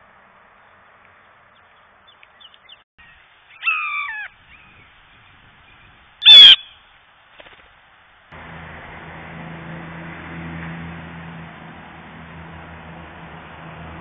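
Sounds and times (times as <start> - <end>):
blue jay harsh calls: 2.6 - 6.9.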